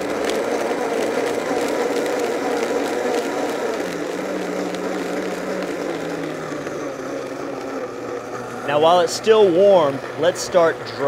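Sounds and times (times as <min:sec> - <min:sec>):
blender motor running: 0:00.0 - 0:11.0.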